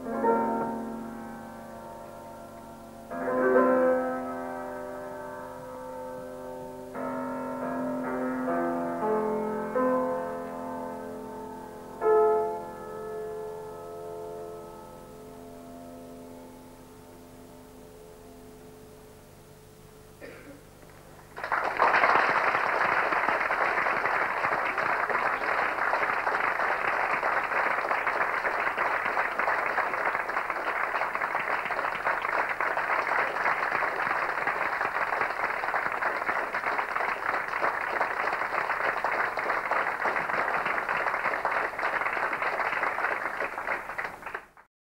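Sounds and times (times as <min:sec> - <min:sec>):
audience applauding: 0:20.9 - 0:44.7.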